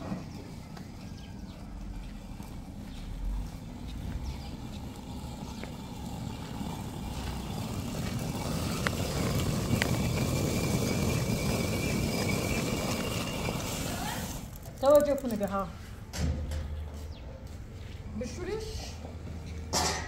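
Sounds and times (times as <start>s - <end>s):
millstones grinding grain: 5.3s - 15.5s.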